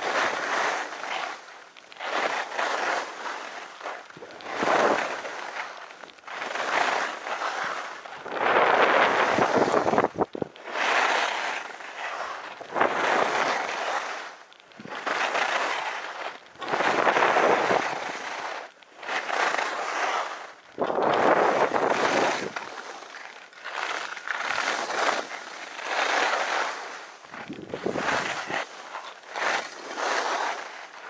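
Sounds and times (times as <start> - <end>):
skis scraping snow: 0.0 - 31.0
wind on microphone: 8.2 - 10.6, 16.6 - 18.3, 20.8 - 22.6, 27.3 - 28.7.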